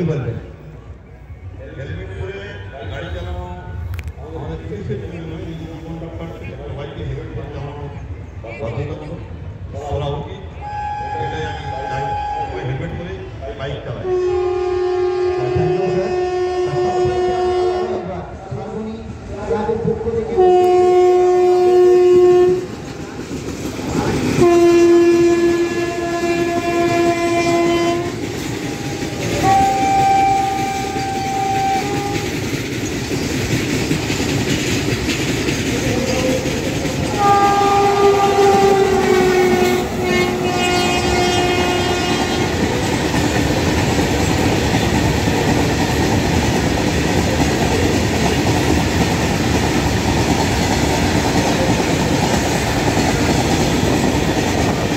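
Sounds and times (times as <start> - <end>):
freight train wagons rolling past: 0.0 - 54.9
locomotive horn blasts: 10.6 - 13.0, 14.0 - 18.1, 20.4 - 22.7, 24.4 - 32.3, 37.1 - 42.6.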